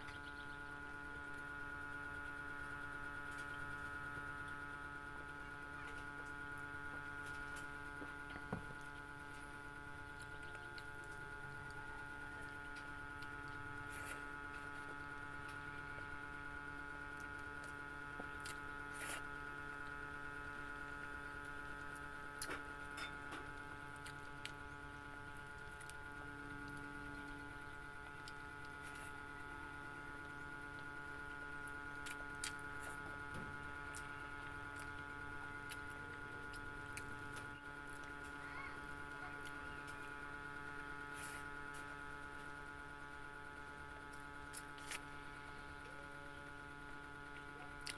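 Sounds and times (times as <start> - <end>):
steady electrical hum: 0.0 - 47.9
chewing food: 6.9 - 16.1, 17.2 - 20.0, 23.5 - 24.6, 31.6 - 38.3, 47.3 - 47.9.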